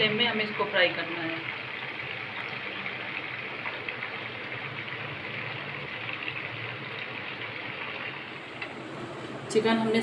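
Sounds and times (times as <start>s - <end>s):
chicken sizzling in hot oil: 0.0s - 9.5s.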